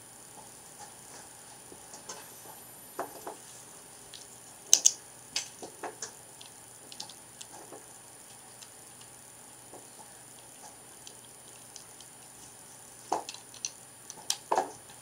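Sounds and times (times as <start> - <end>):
plastic bricks clicking: 4.7 - 5.0, 6.4 - 9.1, 13.1 - 14.6.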